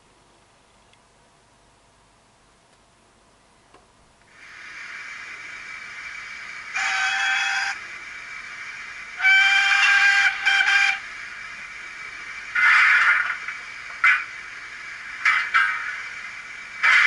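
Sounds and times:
loud burst of hissing steam: 0:04.3 - 0:17.0
steam engine hiss: 0:04.3 - 0:17.0
steam whistle blast: 0:06.7 - 0:07.8, 0:09.1 - 0:11.1, 0:12.6 - 0:13.4.

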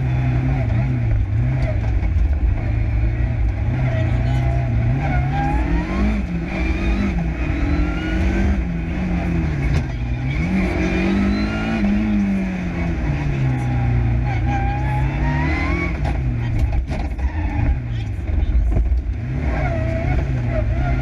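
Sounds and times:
rally car engine revving: 0:00.0 - 0:21.0.

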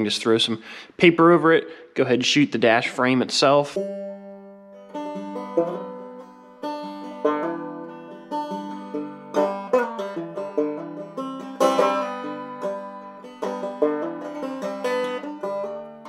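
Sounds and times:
guitar: 0:02.9 - 0:16.0
plucked banjo: 0:03.5 - 0:16.0.

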